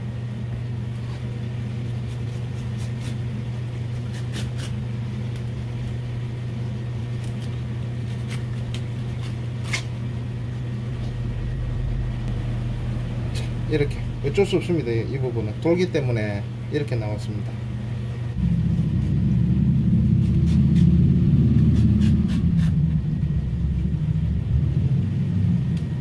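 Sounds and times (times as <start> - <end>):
low machine hum: 0.0 - 26.0
knife scraping on cutting board: 3.9 - 4.8.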